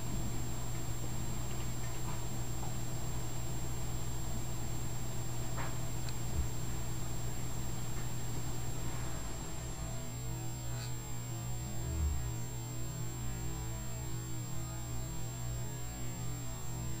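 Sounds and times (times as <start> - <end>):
electrical hum: 0.0 - 17.0
high whine and hiss: 0.0 - 17.0
soft low bump: 6.2 - 6.6.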